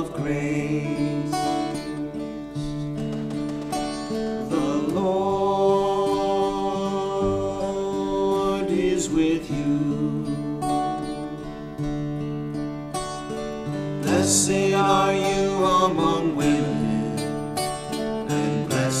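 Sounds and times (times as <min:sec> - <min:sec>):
man singing a hymn: 0:00.0 - 0:02.9, 0:04.4 - 0:11.5, 0:14.0 - 0:19.0
acoustic guitars strumming: 0:00.0 - 0:19.0.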